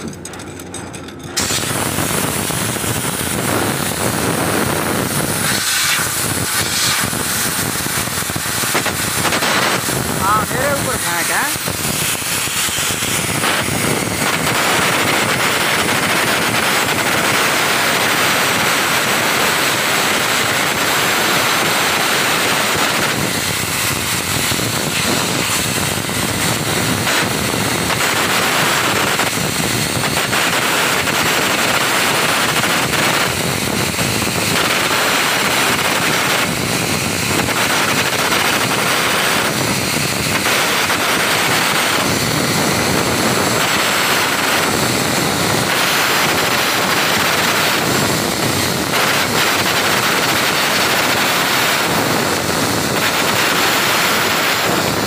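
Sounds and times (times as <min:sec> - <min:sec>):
welding arc crackling: 0:00.0 - 0:55.0.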